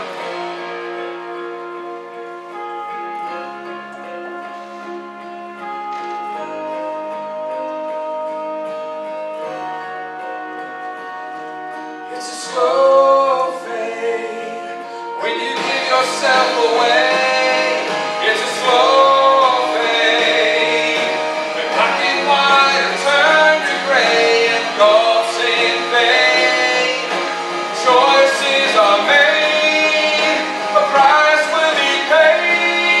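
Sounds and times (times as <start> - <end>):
sustained instrumental chords: 0.0 - 33.0
man singing gospel song: 12.1 - 33.0.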